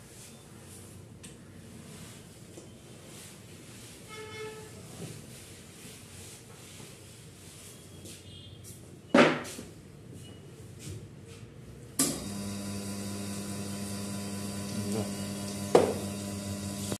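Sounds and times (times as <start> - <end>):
electric machine humming: 12.0 - 17.0.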